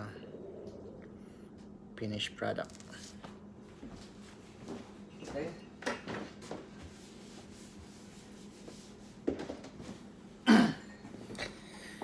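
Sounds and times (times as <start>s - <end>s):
person coughing: 10.4s - 11.0s.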